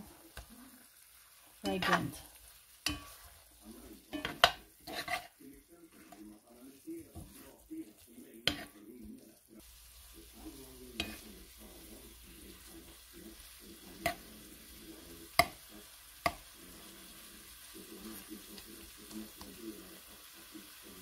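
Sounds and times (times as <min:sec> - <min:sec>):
chicken sizzling in a pan: 0:00.0 - 0:21.0
metal spoon knocking on pan: 0:02.9 - 0:03.2, 0:04.1 - 0:04.6, 0:15.4 - 0:15.6.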